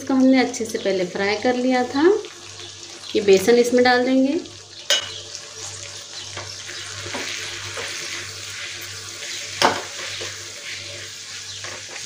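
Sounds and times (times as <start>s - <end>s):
okra sizzling in a pan: 0.0s - 12.0s
wooden spatula scraping: 7.0s - 12.0s.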